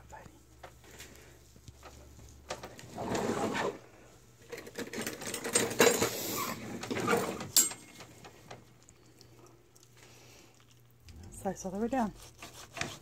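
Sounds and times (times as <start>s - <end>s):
carving knife sawing through meat: 12.0s - 13.0s.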